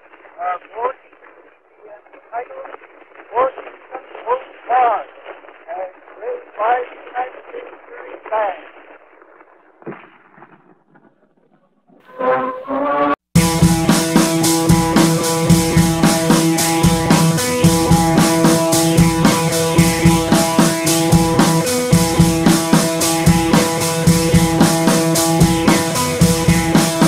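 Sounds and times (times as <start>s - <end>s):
background music with drums and guitar: 13.4s - 27.0s.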